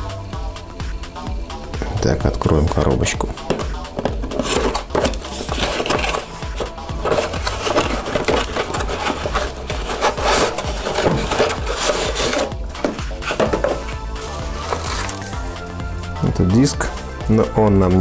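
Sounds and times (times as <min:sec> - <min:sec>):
background music: 0:00.0 - 0:18.0
cardboard rubbing and scraping: 0:03.4 - 0:15.6.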